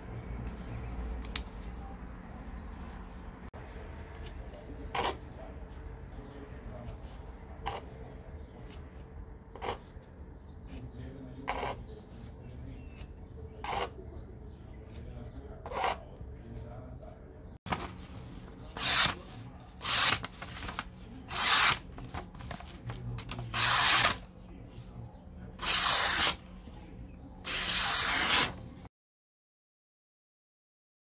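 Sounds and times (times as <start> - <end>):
knife slicing paper: 17.7 - 24.2, 25.6 - 26.4, 27.4 - 28.7.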